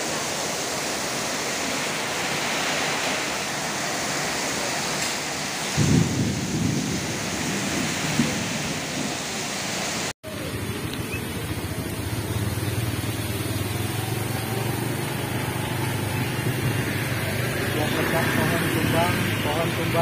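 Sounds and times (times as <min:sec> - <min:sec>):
heavy rain pouring: 0:00.0 - 0:20.0
vehicle engine humming: 0:10.2 - 0:20.0.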